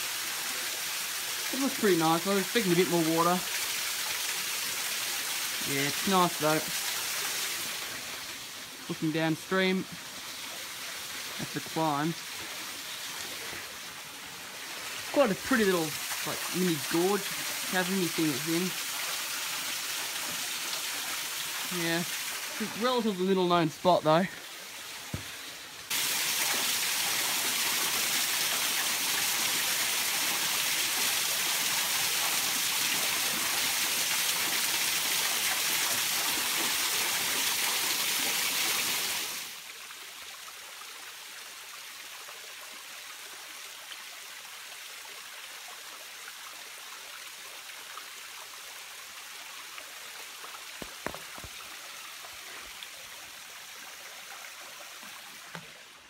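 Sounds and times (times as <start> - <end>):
waterfall rushing over rocks: 0.0 - 39.6, 50.3 - 54.1
creek flowing: 0.0 - 56.0.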